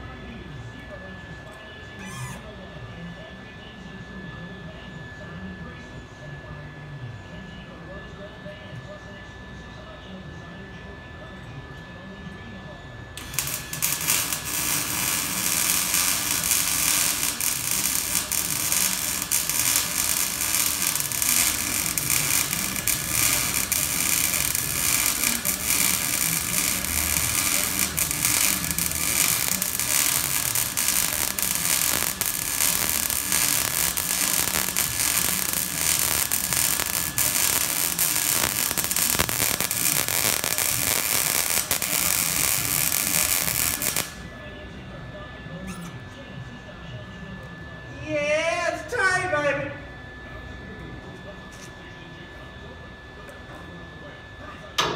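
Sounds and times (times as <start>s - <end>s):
welding arc crackling: 13.2s - 44.3s.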